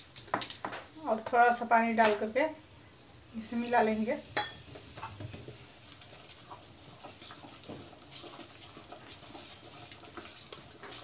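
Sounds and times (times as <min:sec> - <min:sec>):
faint steady hiss: 0:00.0 - 0:11.0
hand mixing wet batter: 0:04.8 - 0:11.0.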